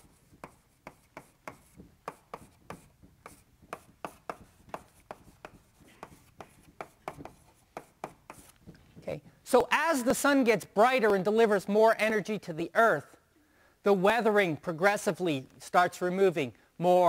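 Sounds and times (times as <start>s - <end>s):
handwriting taps and scratches on board: 0.0s - 9.4s.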